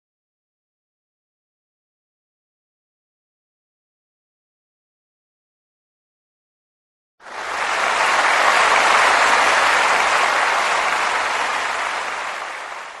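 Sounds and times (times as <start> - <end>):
crowd applause: 7.2 - 13.0.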